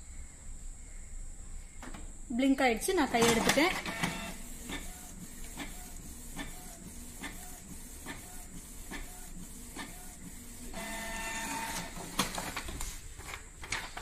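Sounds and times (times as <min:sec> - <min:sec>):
printer carriage clicking and whining: 0:03.1 - 0:14.0
paper-feed motor whirring: 0:03.2 - 0:12.8.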